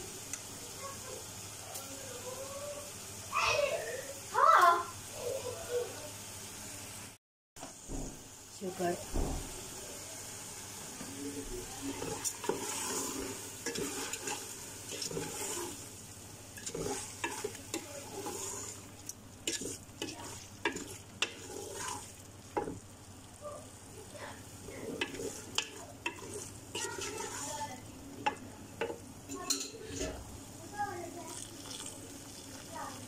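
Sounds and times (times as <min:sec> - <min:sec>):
sauce sizzling: 0:00.0 - 0:33.0
spoon scraping and knocking pot: 0:11.9 - 0:15.7, 0:16.6 - 0:18.8, 0:19.5 - 0:22.0, 0:24.8 - 0:27.5
spoon stirring thick sauce: 0:11.9 - 0:15.8, 0:16.6 - 0:22.8, 0:24.7 - 0:29.7.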